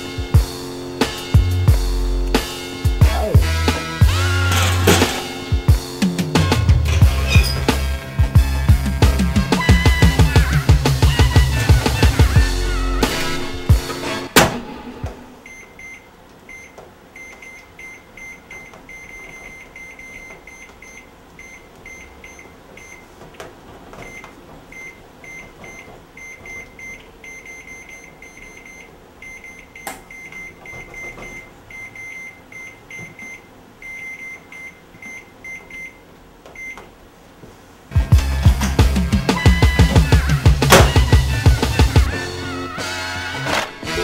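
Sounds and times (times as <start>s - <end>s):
microwave keypad beeping: 15.4s - 23.2s, 24.0s - 36.0s, 36.6s - 36.8s, 39.3s - 41.6s.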